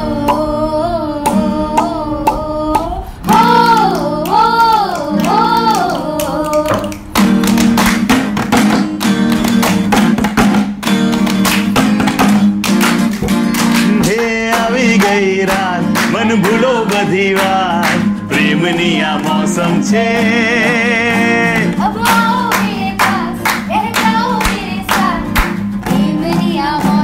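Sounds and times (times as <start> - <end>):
young man singing: 0.0 - 7.0, 13.9 - 23.0
acoustic guitar chords: 0.0 - 27.0
rhythmic hand clapping: 0.2 - 27.0.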